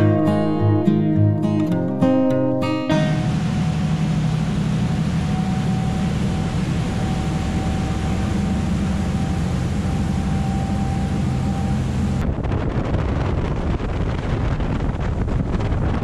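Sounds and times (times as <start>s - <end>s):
boat engine drone: 2.8s - 16.0s
faint steady whine: 3.2s - 12.4s
rushing wake water: 3.2s - 16.0s
wind buffeting microphone: 3.6s - 16.0s.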